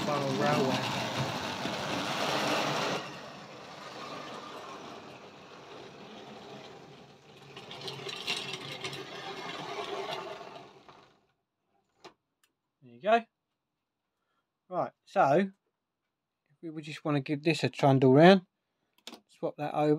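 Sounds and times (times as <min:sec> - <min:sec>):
model train wheels rattling: 0:00.0 - 0:11.2.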